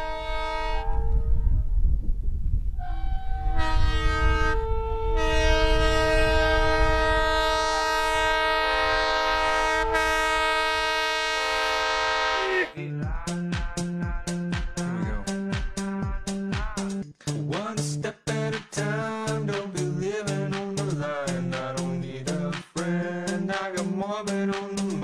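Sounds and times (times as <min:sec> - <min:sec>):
multi-note air horn: 0:00.0 - 0:01.0, 0:02.8 - 0:12.8
music with a beat: 0:12.9 - 0:25.0.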